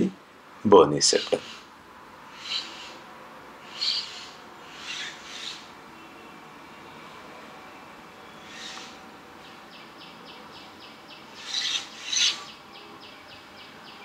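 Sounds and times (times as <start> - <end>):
loud hissing bursts: 1.1 - 1.7.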